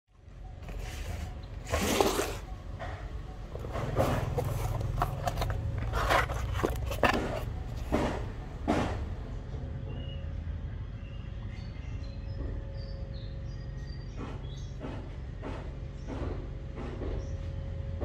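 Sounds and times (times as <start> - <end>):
cardboard box scraping and crackling: 0.6 - 9.0.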